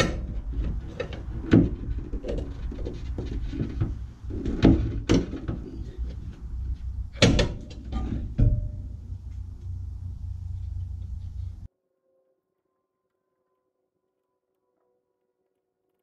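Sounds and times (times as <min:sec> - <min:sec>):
car parts clunking and clicking: 0:00.0 - 0:11.7
low rumble: 0:03.6 - 0:11.7
sharp knocks: 0:06.9 - 0:09.9.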